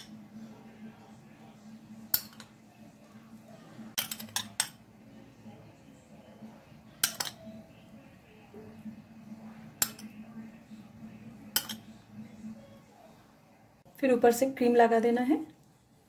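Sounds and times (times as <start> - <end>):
metal spoon clinking on dish: 2.1 - 2.6, 4.0 - 4.8, 6.9 - 7.6, 9.8 - 10.2, 11.5 - 12.0.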